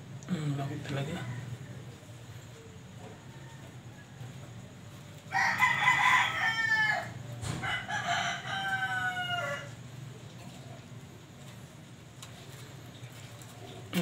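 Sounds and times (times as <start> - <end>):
rooster crowing: 3.0 - 10.0.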